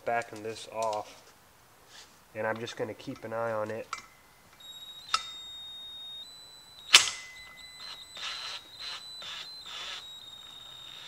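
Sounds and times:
sharp metallic click: 0:06.9 - 0:07.6.

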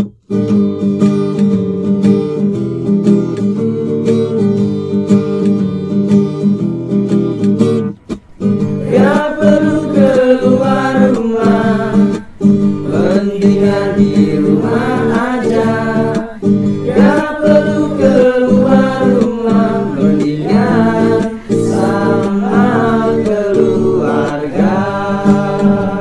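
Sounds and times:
acoustic guitar strumming: 0:00.0 - 0:26.0
group of people singing: 0:08.6 - 0:26.0.

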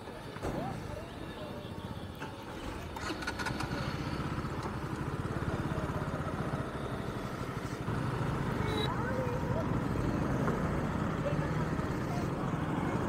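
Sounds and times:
motorcycle engine pulling away: 0:02.5 - 0:08.6.

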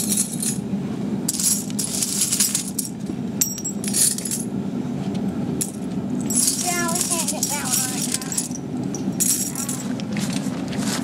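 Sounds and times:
foundry furnace roaring: 0:00.0 - 0:11.0
metallic clinks and scrapes: 0:01.3 - 0:04.5, 0:05.6 - 0:11.0.

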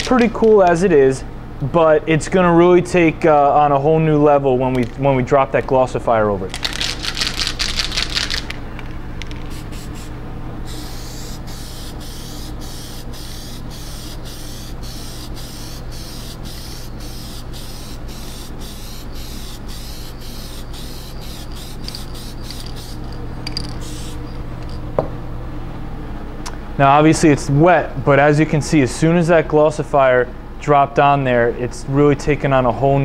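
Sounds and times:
aerosol spray can hissing: 0:06.7 - 0:08.5, 0:09.3 - 0:24.4.

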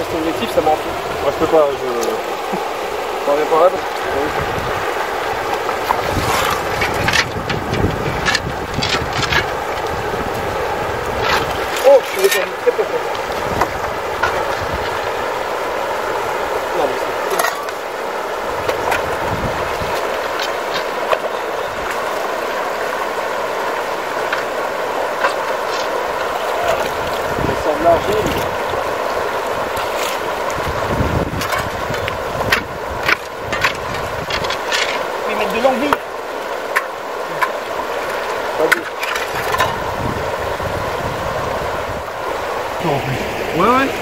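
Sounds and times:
river rushing over stones: 0:00.0 - 0:44.0
shovels scraping stones and gravel: 0:05.9 - 0:09.6, 0:11.2 - 0:12.7, 0:17.3 - 0:17.8, 0:32.6 - 0:36.0.

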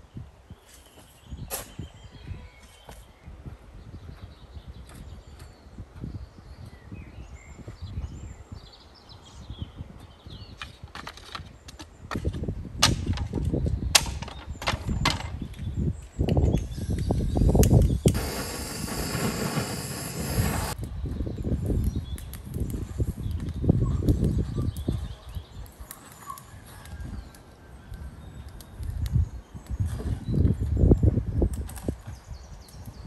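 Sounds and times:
gusty low rumble: 0:17.0 - 0:21.6
blowtorch hissing: 0:17.4 - 0:20.8.

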